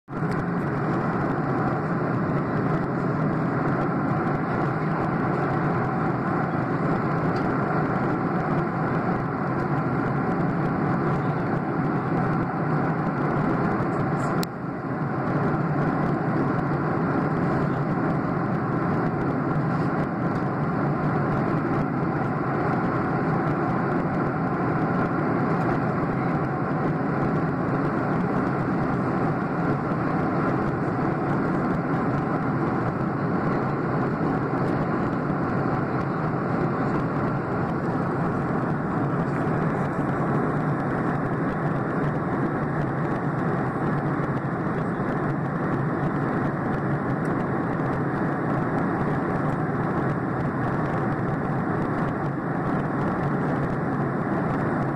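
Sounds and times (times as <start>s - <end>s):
jet cabin engine rush: 0.0s - 54.9s.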